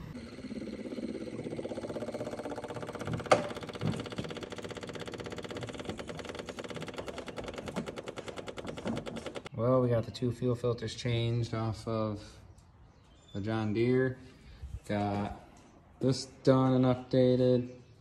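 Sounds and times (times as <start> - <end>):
fuel pump ticking rapidly: 0.0 - 9.5.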